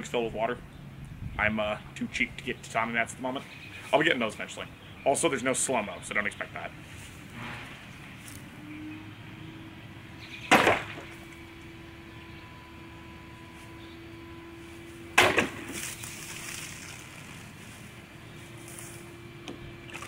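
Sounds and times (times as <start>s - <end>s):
sword blade whacking water jug: 10.5s - 11.1s, 15.2s - 15.9s
water splashing: 15.2s - 17.6s, 19.8s - 20.0s.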